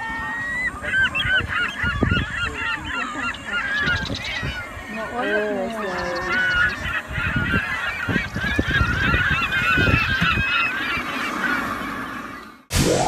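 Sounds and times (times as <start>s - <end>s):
wind rumbling on microphone: 0.0s - 5.1s, 5.9s - 11.1s
flock of birds calling: 0.0s - 12.7s.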